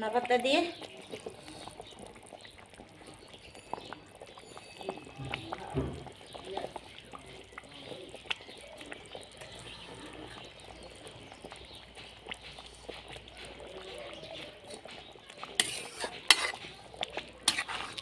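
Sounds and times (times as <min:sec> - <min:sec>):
curry bubbling in a metal pot: 0:00.0 - 0:18.0
metal spatula clanking against pot: 0:14.7 - 0:18.0.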